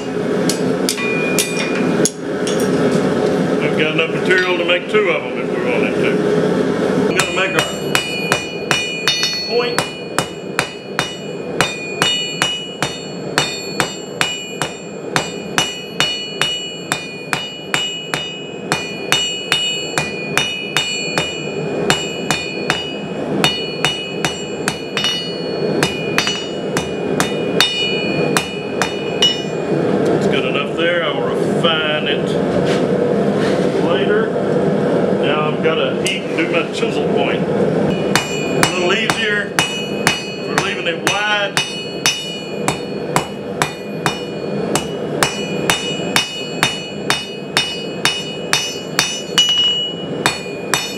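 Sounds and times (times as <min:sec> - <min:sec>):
hammer striking steel on anvil: 0:00.0 - 0:02.8, 0:07.1 - 0:29.8, 0:37.9 - 0:50.9.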